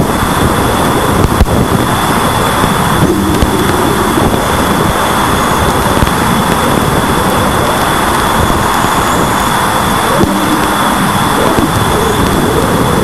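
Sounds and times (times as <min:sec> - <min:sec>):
dense rushing hiss: 0:00.0 - 0:13.0
steady high tone: 0:02.7 - 0:13.0.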